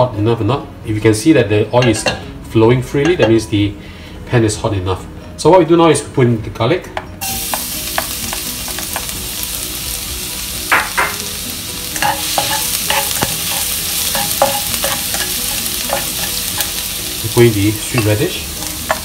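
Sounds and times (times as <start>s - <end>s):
garlic sizzling in oil: 7.2s - 19.0s
spatula scraping a wok: 11.9s - 17.0s.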